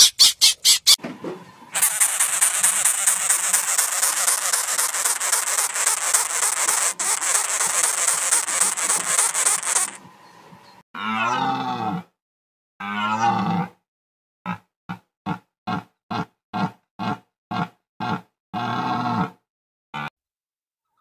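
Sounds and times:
drawn-out animal calls: 0:01.8 - 0:10.0
harsh buzzing animal chatter: 0:01.8 - 0:10.0.

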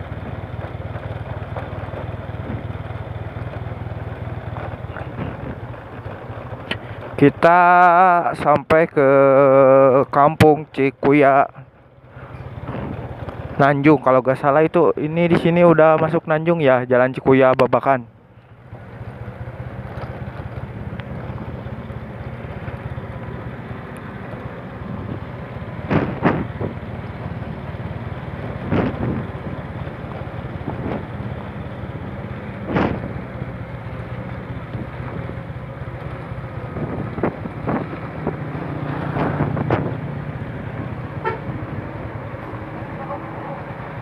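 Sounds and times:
motorcycle engine running: 0:00.0 - 0:16.4, 0:17.6 - 0:44.0
wind on microphone: 0:36.7 - 0:40.1.

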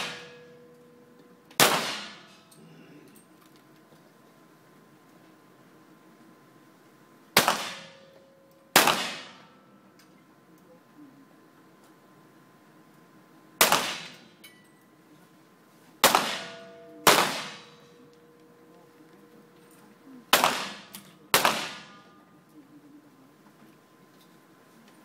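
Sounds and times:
pistol shots echoing indoors: 0:00.0 - 0:00.7, 0:01.6 - 0:02.4, 0:07.4 - 0:09.5, 0:13.6 - 0:14.3, 0:16.0 - 0:18.6, 0:20.3 - 0:22.2.

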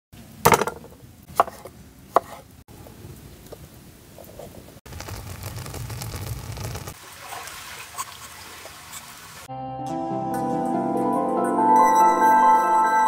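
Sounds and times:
knife chopping on wooden board: 0:00.5 - 0:02.4.

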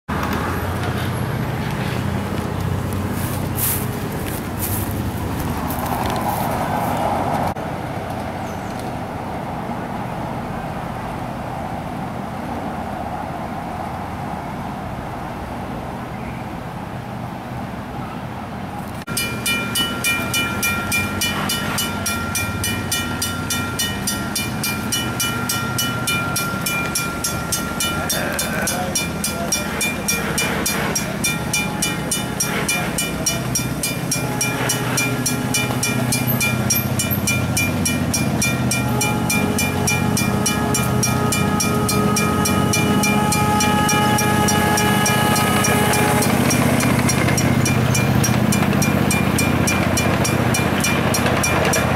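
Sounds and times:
crossing signal bell ringing: 0:19.1 - 0:51.9.

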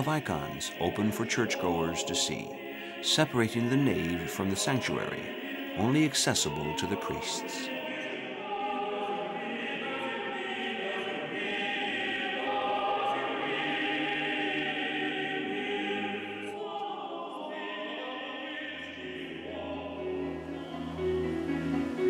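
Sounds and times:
male choir singing held chords: 0:00.0 - 0:22.0.

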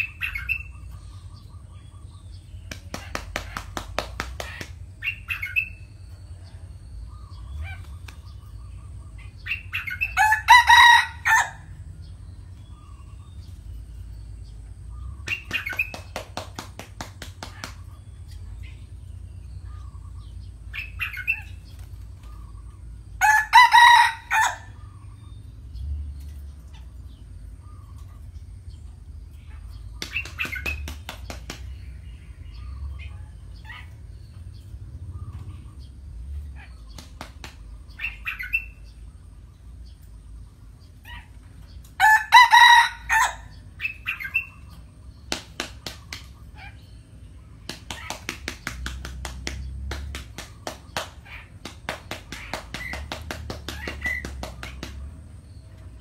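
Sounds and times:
rapid wing-flapping: 0:02.7 - 0:04.8, 0:15.3 - 0:17.9, 0:30.0 - 0:31.7, 0:36.9 - 0:37.7, 0:45.3 - 0:46.4, 0:47.6 - 0:55.3
rooster crowing: 0:10.0 - 0:11.7, 0:23.2 - 0:24.9, 0:42.0 - 0:43.6.

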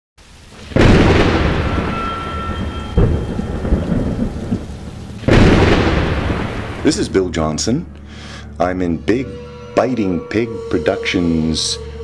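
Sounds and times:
rain: 0:00.2 - 0:07.4
thunder: 0:00.6 - 0:07.2.

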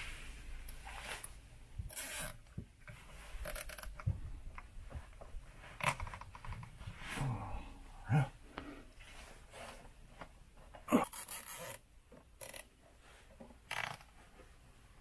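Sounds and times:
cable ties ratcheting zips: 0:03.4 - 0:04.1, 0:11.0 - 0:11.8, 0:12.4 - 0:12.7, 0:13.7 - 0:14.1.

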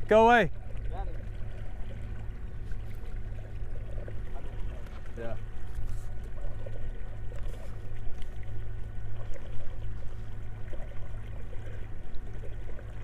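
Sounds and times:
outboard motor running: 0:00.0 - 0:13.0
water rushing along hull: 0:00.0 - 0:13.0.

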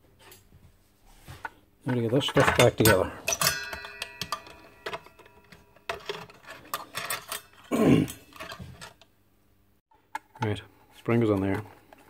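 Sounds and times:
small parts clicking and clinking: 0:01.9 - 0:09.1
metallic ring: 0:02.7 - 0:08.4
person murmuring: 0:07.7 - 0:08.2.

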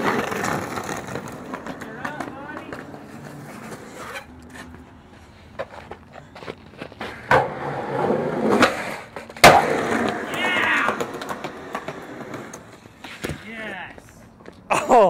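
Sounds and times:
skateboard wheels rolling on concrete: 0:00.0 - 0:15.0
skateboard landing slap: 0:08.4 - 0:13.4
skateboard tail pop: 0:08.5 - 0:11.8.

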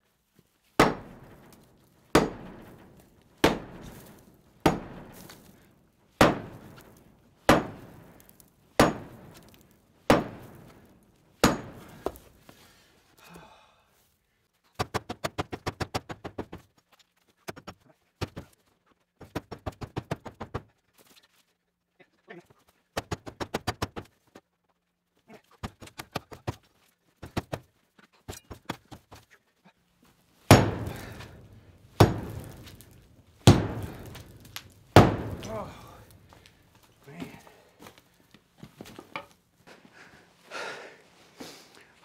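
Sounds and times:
sledgehammer striking concrete blocks: 0:00.8 - 0:12.4, 0:30.5 - 0:36.5.

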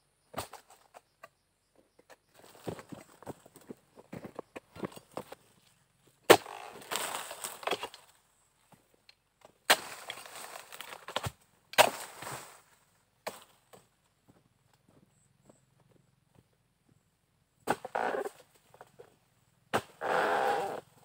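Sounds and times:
chisel chopping into palm trunk: 0:06.3 - 0:07.9, 0:09.7 - 0:10.2, 0:11.1 - 0:12.1, 0:19.7 - 0:20.0.

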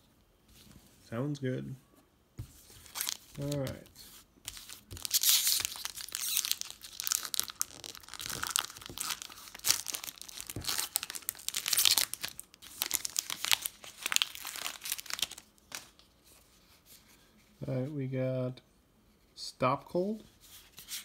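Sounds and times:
foil wrapper tearing and crinkling: 0:04.5 - 0:15.9.

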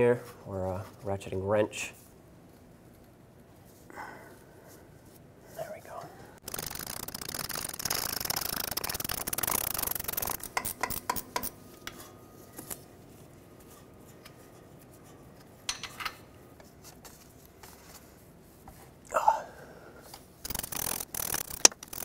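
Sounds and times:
ratchet clicking: 0:06.4 - 0:11.6, 0:20.4 - 0:22.0
sharp metal clicks: 0:06.4 - 0:11.6, 0:20.4 - 0:22.0.

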